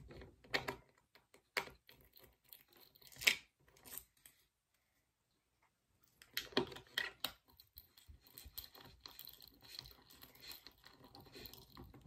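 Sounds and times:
small parts clicking and knocking: 0.0 - 4.4, 6.1 - 12.0
light tapping and scratching: 6.1 - 12.0.

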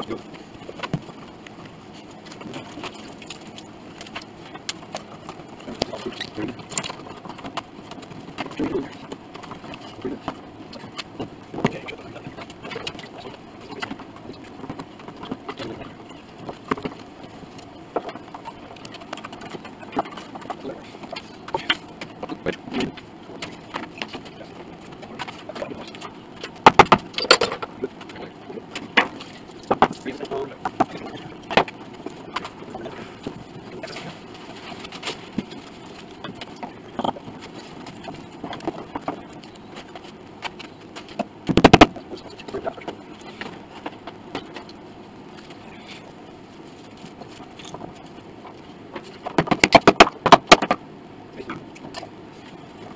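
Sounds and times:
wooden clicks and knocks: 49.2 - 50.8.

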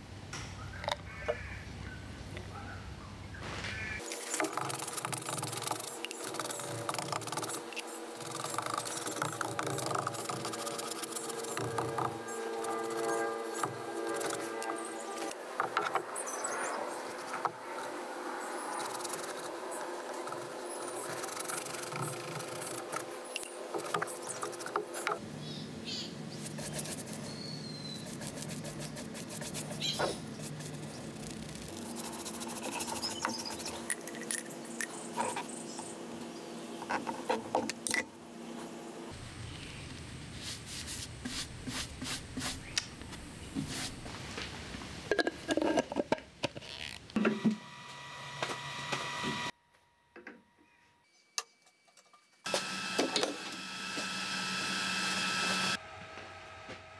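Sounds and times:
tool scraping spinning wood: 4.0 - 16.1, 16.9 - 25.2, 27.9 - 35.8, 52.5 - 55.8
wood lathe humming: 4.4 - 15.7, 47.2 - 49.5, 52.5 - 56.9.

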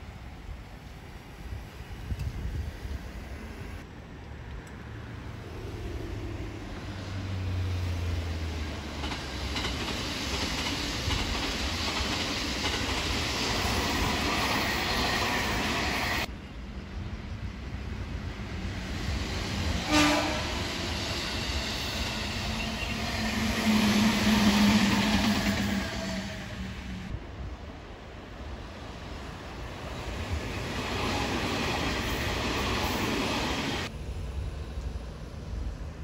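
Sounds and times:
train wheels clattering over rails: 8.6 - 16.3
train horn blast: 19.8 - 20.7.

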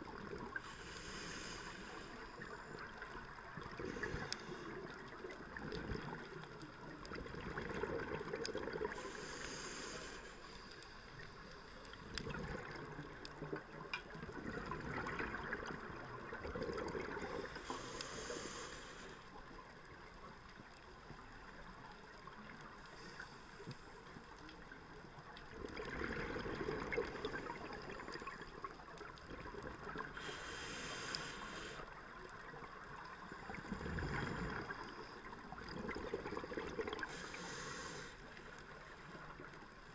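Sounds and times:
underwater bubbling: 0.0 - 39.9
diver breathing through regulator: 0.6 - 2.9, 8.9 - 11.1, 17.2 - 19.3, 30.0 - 31.9, 37.0 - 38.6.

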